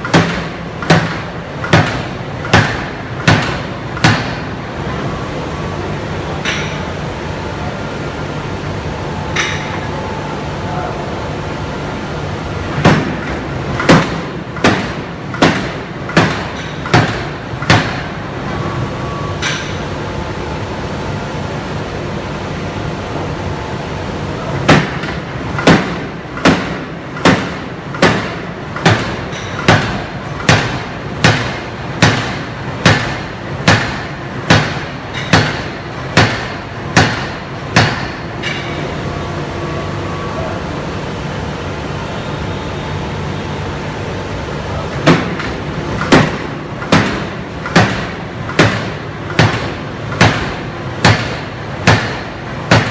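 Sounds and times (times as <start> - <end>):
forging hammer heavy blows: 45.0 - 52.9.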